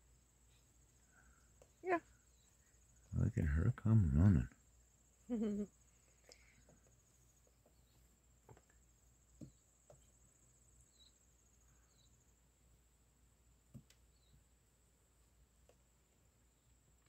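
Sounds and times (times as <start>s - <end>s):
high insect trill: 0.0s - 12.6s.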